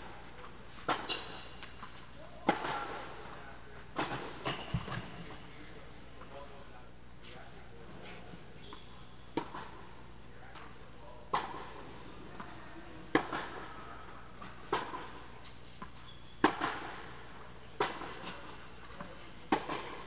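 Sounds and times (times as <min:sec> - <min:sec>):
racket striking tennis ball: 0:00.7 - 0:03.3, 0:03.9 - 0:05.3, 0:09.3 - 0:09.8, 0:11.3 - 0:11.8, 0:13.1 - 0:13.7, 0:14.4 - 0:20.0
tennis ball bouncing: 0:00.7 - 0:03.4, 0:04.0 - 0:05.4, 0:08.7 - 0:09.8, 0:11.3 - 0:13.7, 0:14.4 - 0:20.0.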